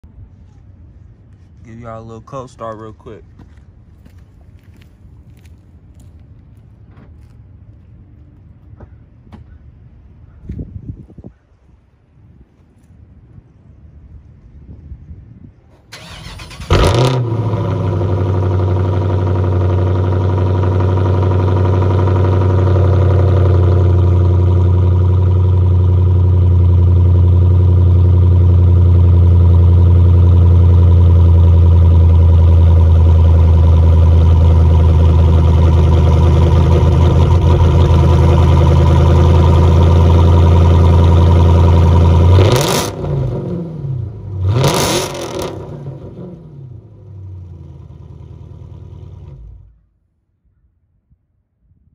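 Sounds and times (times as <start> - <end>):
car engine starting and idling: 15.7 - 49.8.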